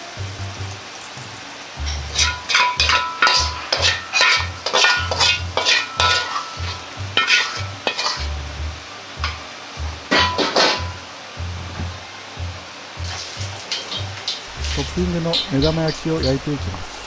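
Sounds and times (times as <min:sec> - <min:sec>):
metal ladle scraping a wok: 0:01.8 - 0:08.3.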